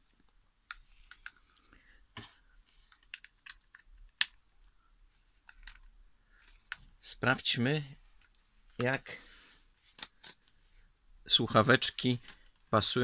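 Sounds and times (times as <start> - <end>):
plastic headphones clicking: 0.0 - 7.0, 9.9 - 10.6.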